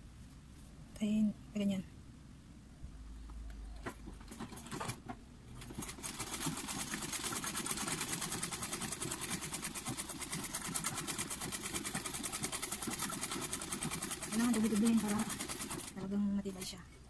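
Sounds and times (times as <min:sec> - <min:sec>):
sewing machine stitching: 0:03.8 - 0:16.8.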